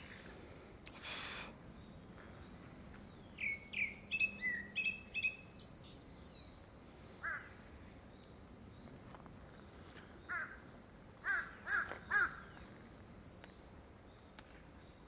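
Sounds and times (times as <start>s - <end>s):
thrush singing whistled notes: 2.8s - 6.6s.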